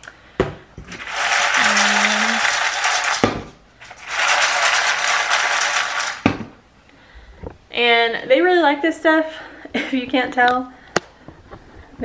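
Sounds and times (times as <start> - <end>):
kibble rattling in metal bowl: 0.9 - 6.2.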